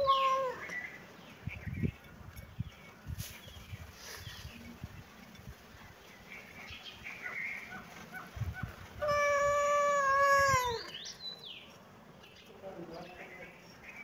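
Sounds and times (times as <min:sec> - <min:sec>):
cat meowing: 0:00.0 - 0:00.6, 0:09.0 - 0:10.9.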